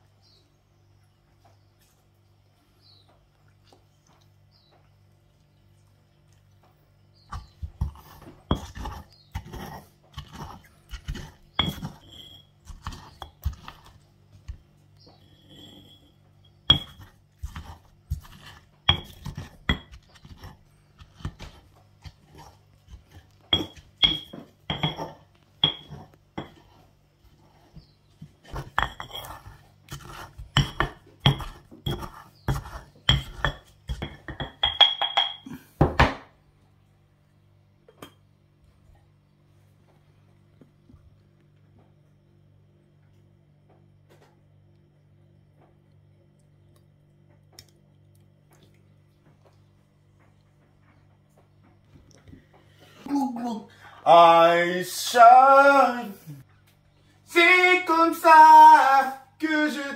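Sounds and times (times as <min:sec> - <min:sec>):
stone pestle pounding in mortar: 0:07.3 - 0:14.6, 0:16.6 - 0:26.6, 0:28.4 - 0:36.3.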